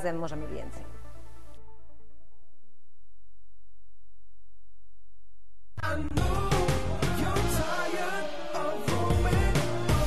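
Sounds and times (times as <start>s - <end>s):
pop music with singing: 5.8s - 10.0s.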